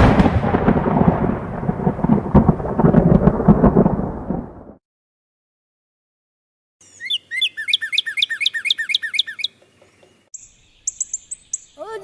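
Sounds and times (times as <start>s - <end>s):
thunder rumble with crackles: 0.0s - 4.8s.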